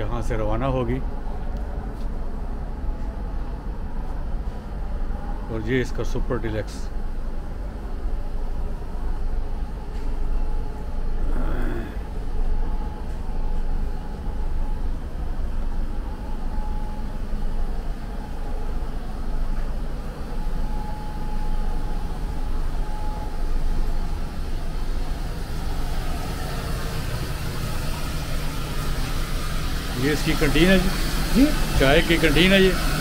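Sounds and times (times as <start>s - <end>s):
faint steady whine: 0.0s - 33.0s
stationary train coach rumble: 0.0s - 33.0s.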